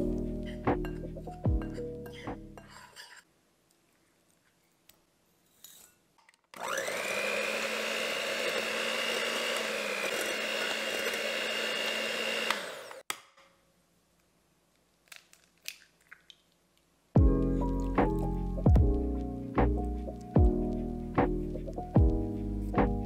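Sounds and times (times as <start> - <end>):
electric hand mixer whirring: 6.6 - 13.0.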